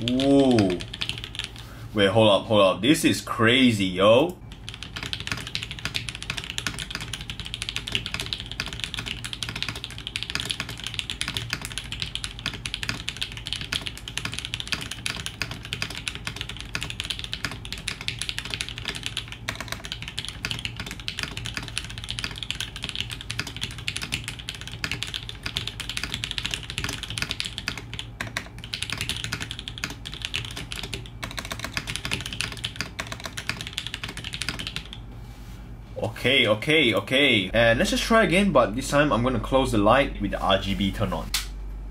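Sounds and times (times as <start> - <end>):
mechanical keyboard typing: 0.0 - 1.6, 4.5 - 35.0.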